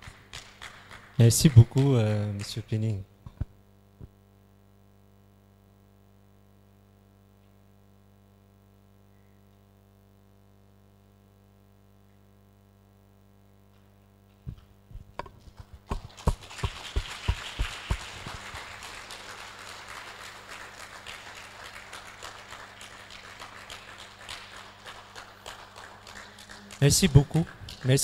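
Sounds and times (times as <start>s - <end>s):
audience applauding: 0.0s - 2.6s, 15.9s - 28.0s.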